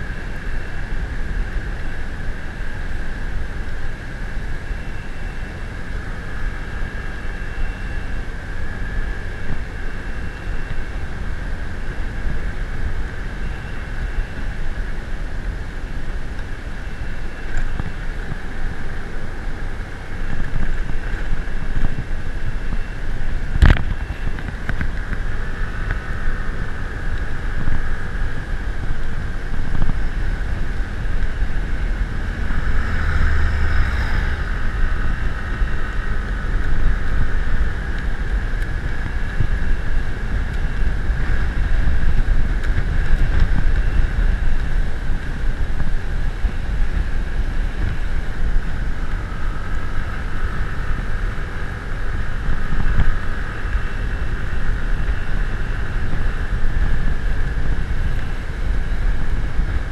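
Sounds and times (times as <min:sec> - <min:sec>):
vehicle running: 0:00.0 - 0:59.9
wind rumble on microphone: 0:00.0 - 0:59.9.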